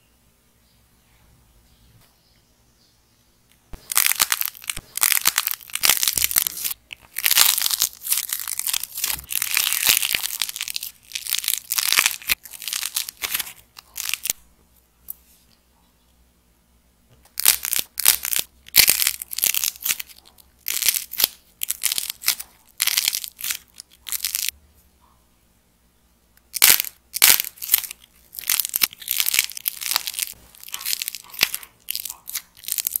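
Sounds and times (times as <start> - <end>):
dry clay crunching by hand: 3.8 - 14.4, 17.3 - 24.6, 26.5 - 33.0.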